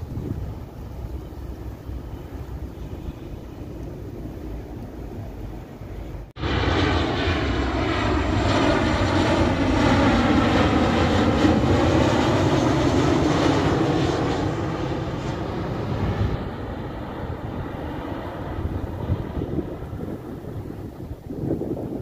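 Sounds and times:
jet airliner engines flying past: 0:00.0 - 0:22.0.

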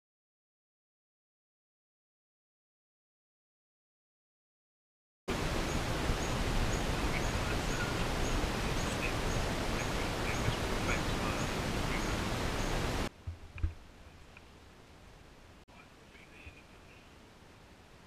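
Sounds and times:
birds calling: 0:05.3 - 0:13.1.

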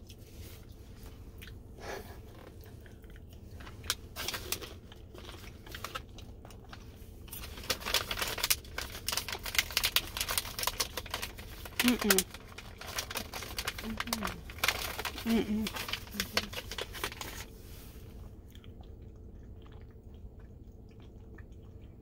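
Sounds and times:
low rumble of car cabin: 0:00.0 - 0:22.0
plastic snack pouch crinkling: 0:03.5 - 0:17.5.

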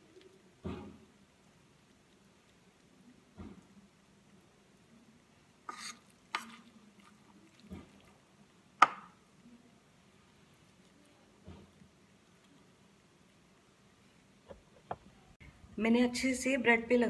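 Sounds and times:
spoon scraping bowl: 0:05.6 - 0:08.1.

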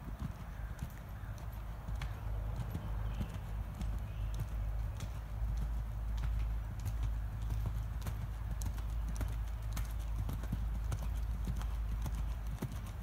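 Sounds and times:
horse hoofbeats on sand: 0:00.0 - 0:13.0.

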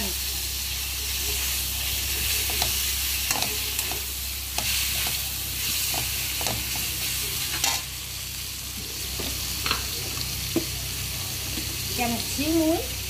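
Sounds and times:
fish sizzling in oil: 0:00.0 - 0:13.0
metal spatula scraping wok: 0:05.8 - 0:07.9.

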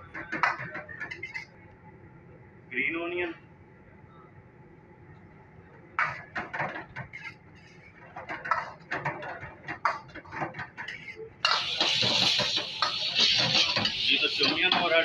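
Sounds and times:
metal spatula scraping wok: 0:10.9 - 0:15.0
loud sizzle in wok: 0:11.4 - 0:15.0.

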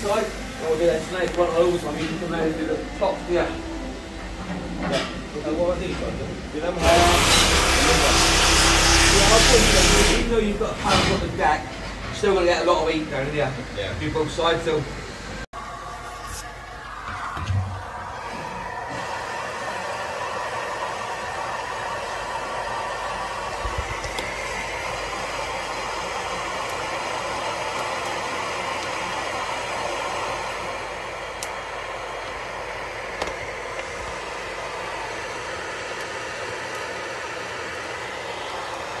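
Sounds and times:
rushing machinery noise: 0:01.7 - 0:12.4.

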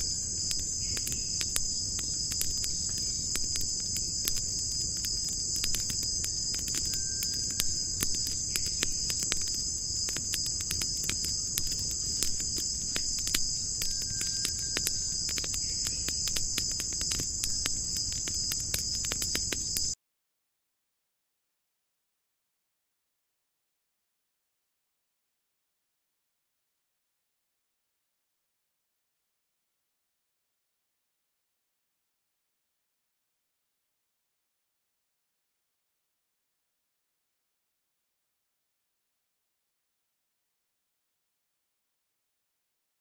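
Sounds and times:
crickets chirring: 0:00.0 - 0:20.0
sharp clicks: 0:00.5 - 0:20.0.

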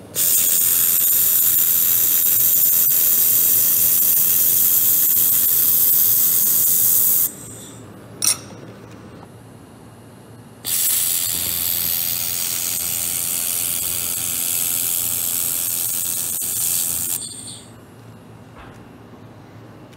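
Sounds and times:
high hiss of welding gas and sparks: 0:00.2 - 0:07.8, 0:10.7 - 0:17.7
low machine hum: 0:07.2 - 0:19.9.

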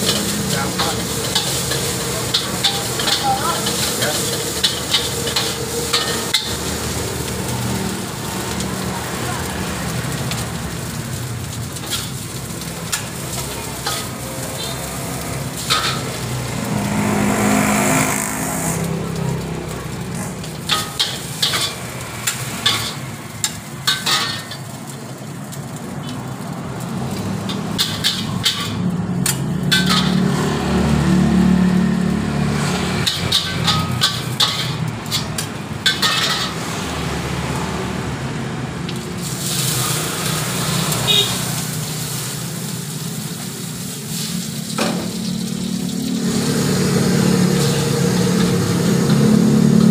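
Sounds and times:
metal spatula scraping a wok: 0:00.0 - 0:08.6, 0:11.8 - 0:18.9, 0:20.2 - 0:24.8, 0:27.1 - 0:30.6, 0:32.6 - 0:37.0, 0:39.2 - 0:49.9
frying sizzle: 0:00.0 - 0:49.9
water running into hot wok: 0:00.0 - 0:49.9.

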